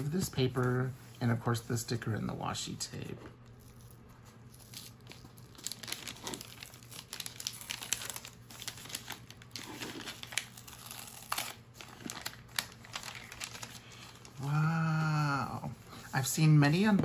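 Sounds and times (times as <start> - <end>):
paper wrapping crinkling: 3.4 - 14.6.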